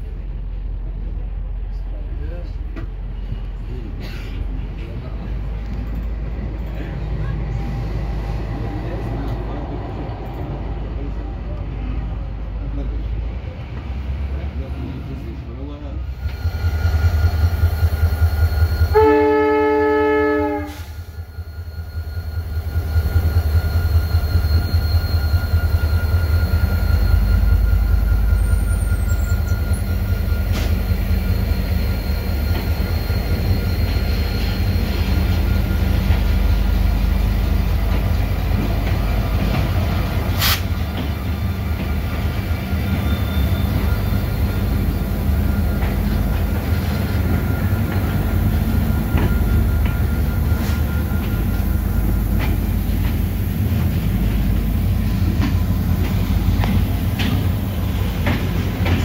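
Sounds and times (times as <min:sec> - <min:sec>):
diesel locomotives rumbling: 0:00.0 - 0:59.0
train horn chord: 0:18.9 - 0:21.0.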